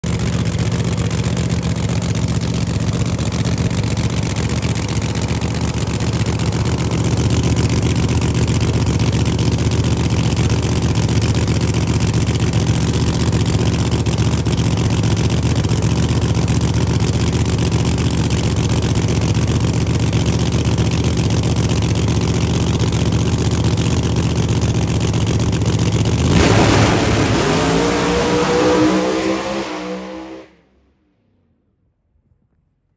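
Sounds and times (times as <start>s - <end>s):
racing car engine revving: 26.1s - 30.7s.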